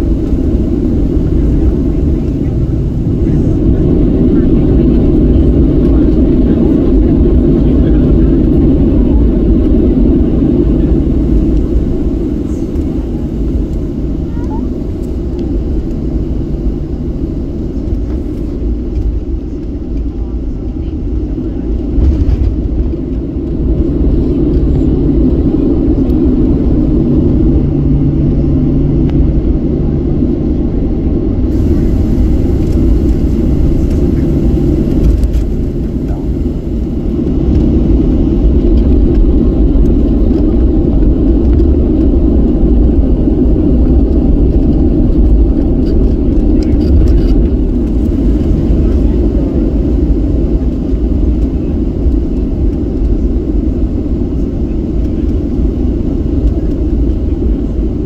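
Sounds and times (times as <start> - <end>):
airplane cabin engine rumble: 0.0 - 58.0.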